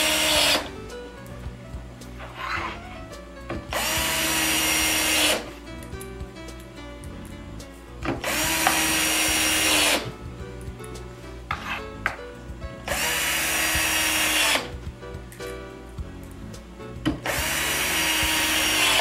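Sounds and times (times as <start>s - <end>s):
cordless drill driving screws: 0.0s - 0.7s, 3.7s - 5.5s, 8.2s - 10.1s, 12.9s - 14.7s, 17.2s - 19.0s.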